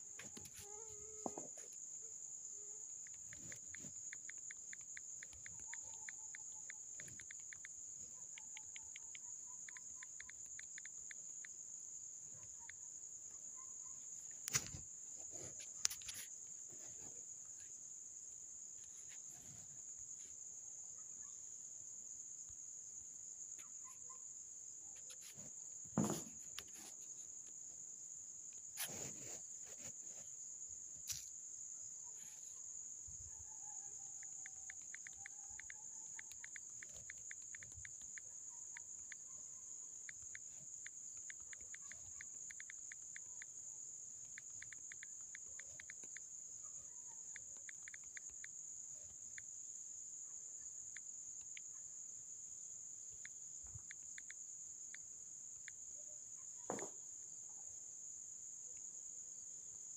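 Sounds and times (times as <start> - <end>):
insects trilling: 0.0 - 59.9
sharp clicks: 3.0 - 11.5, 34.4 - 39.3, 40.1 - 43.3, 44.2 - 46.3, 47.4 - 48.5
soft rapid ticking: 3.1 - 7.8, 34.7 - 39.2, 40.1 - 43.4.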